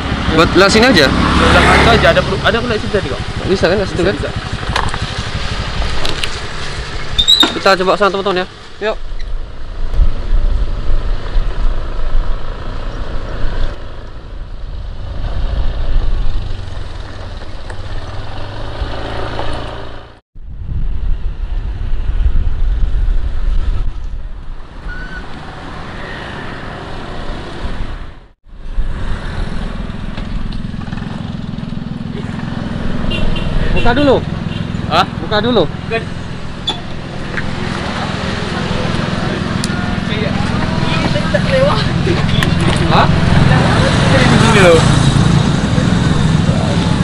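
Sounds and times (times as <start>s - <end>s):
scooter engine running: 0.0s - 7.3s, 29.4s - 47.0s
wind on microphone: 9.0s - 17.6s, 20.4s - 25.2s.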